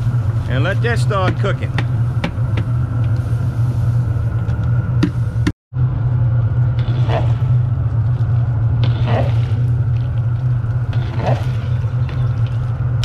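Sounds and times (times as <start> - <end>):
loud low rumble: 0.0 - 13.0
paddle sloshing in stew: 6.8 - 13.0.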